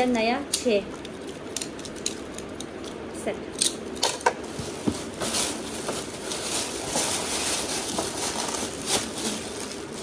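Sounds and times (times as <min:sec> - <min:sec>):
plastic bag rustling: 0:04.4 - 0:10.0.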